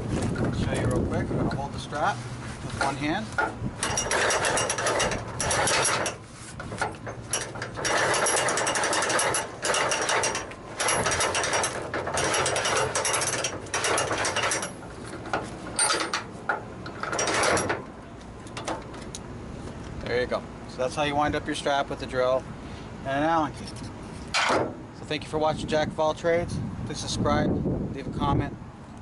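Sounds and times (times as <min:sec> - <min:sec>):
winch ratchet clicking: 0:07.2 - 0:14.8.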